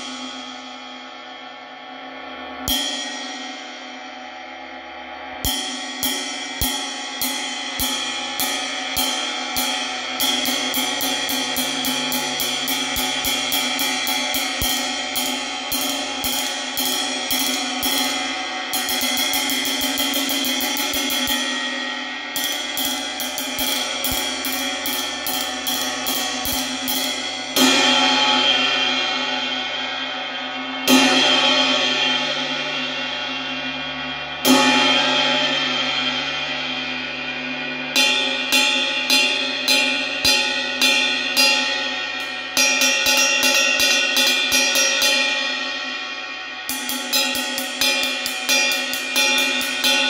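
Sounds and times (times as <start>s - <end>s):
ride cymbal struck with drumstick: 0.0s - 50.0s.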